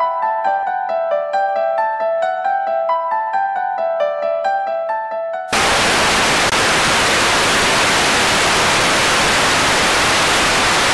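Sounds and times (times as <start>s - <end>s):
television static hiss: 5.5s - 10.9s.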